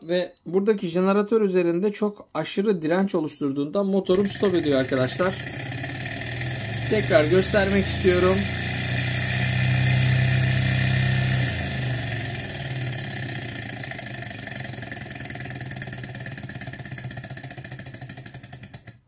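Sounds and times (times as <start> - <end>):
small engine humming and slowing: 4.1 - 19.0.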